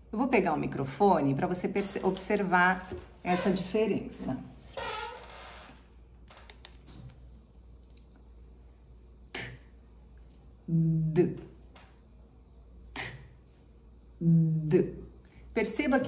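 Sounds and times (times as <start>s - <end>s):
woman making consonant sounds: 10.6s - 11.6s, 14.2s - 15.2s.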